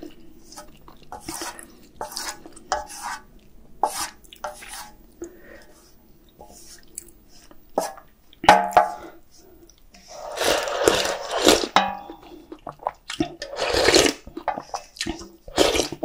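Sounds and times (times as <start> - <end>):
steel pan knocking and ringing: 8.5 - 9.0, 11.8 - 12.2
person slurping broth: 10.1 - 11.8, 12.6 - 16.0.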